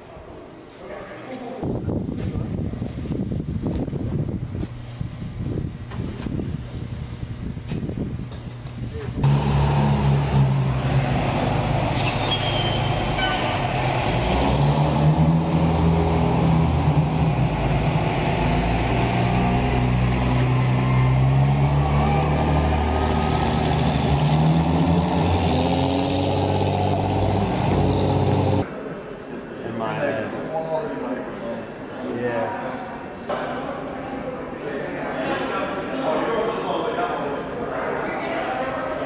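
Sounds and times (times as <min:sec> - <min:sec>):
tow tractor engine running: 0:08.4 - 0:28.6
brief high squeal: 0:12.0 - 0:13.6.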